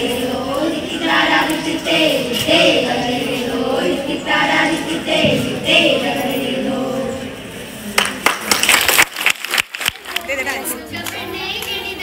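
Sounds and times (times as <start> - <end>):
children singing together: 0.0 - 7.6
hand clapping: 8.0 - 10.3.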